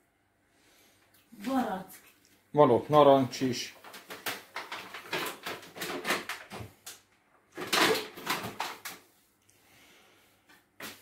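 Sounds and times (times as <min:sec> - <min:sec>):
kitchen items knocking and clattering: 0:03.6 - 0:09.0.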